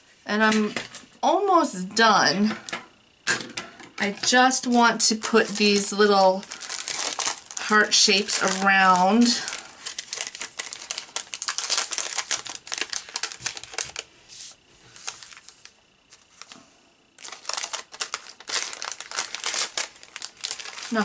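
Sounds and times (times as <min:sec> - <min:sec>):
plastic sheet crinkling: 0:04.0 - 0:16.6, 0:17.2 - 0:21.0.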